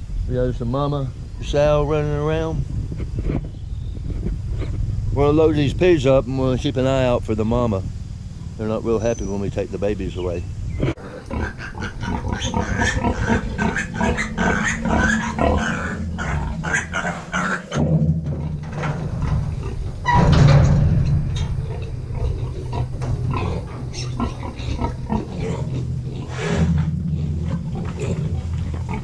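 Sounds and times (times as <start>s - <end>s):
pigs squealing and grunting: 10.8s - 29.0s.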